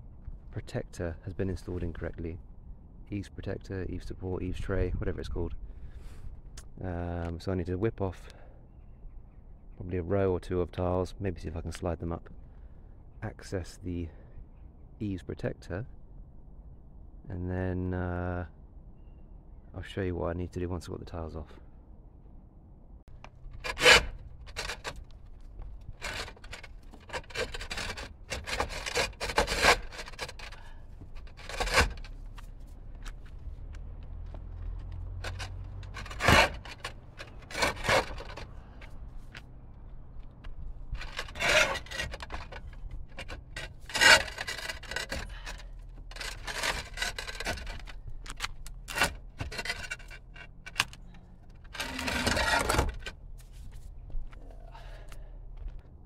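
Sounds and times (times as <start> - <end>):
roof tiles scraping and knocking: 23.5 - 33.4, 34.6 - 38.5, 40.9 - 53.8.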